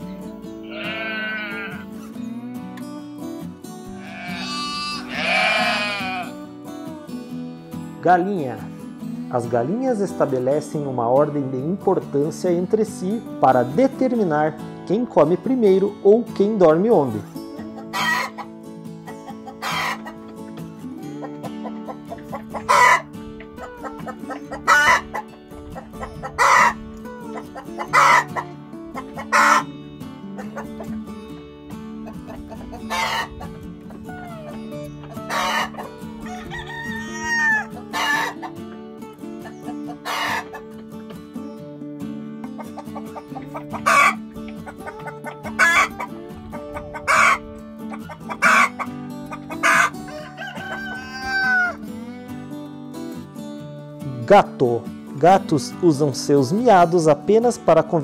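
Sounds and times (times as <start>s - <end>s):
music with held notes: 0.0s - 58.0s
hen squawks: 0.7s - 1.8s, 4.0s - 6.3s, 17.8s - 18.5s, 19.4s - 20.2s, 21.2s - 29.7s, 32.5s - 33.4s, 34.1s - 38.5s, 39.4s - 40.6s, 42.6s - 46.2s, 46.8s - 51.8s
hens clucking: 4.0s - 6.2s, 17.0s - 29.7s, 30.3s - 31.1s, 32.0s - 38.8s, 39.4s - 41.1s, 42.4s - 51.8s.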